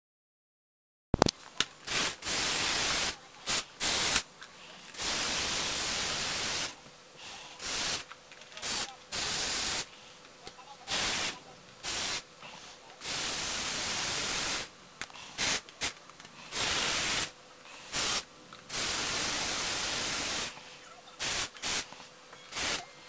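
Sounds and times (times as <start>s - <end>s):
toy electric motor and gears whirring: 7.6s - 12.2s, 15.3s - 23.0s.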